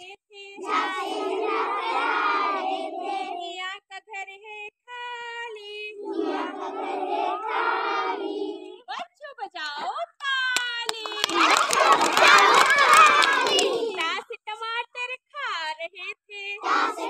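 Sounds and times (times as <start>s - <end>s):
children singing in unison: 0.6s - 3.4s, 6.0s - 8.8s, 11.2s - 14.0s, 16.6s - 17.0s.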